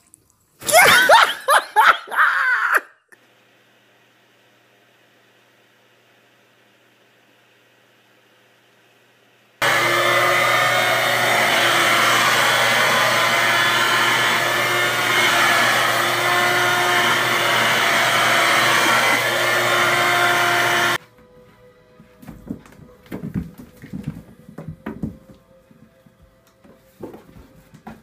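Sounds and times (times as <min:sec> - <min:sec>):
handheld vacuum cleaner running: 0:09.6 - 0:21.0.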